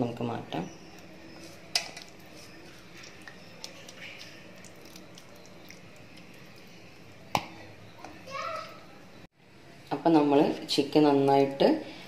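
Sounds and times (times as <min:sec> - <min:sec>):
wet squelching of chicken: 0:02.0 - 0:06.7
small wet clicks: 0:03.0 - 0:06.4.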